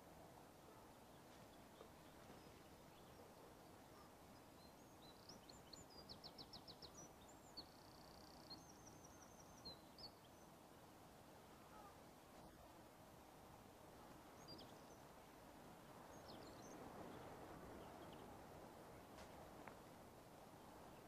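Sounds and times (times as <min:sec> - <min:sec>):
faint outdoor ambience: 0:00.0 - 0:21.0
songbird chirping and trilling: 0:00.7 - 0:10.6, 0:14.0 - 0:15.3, 0:16.0 - 0:18.4.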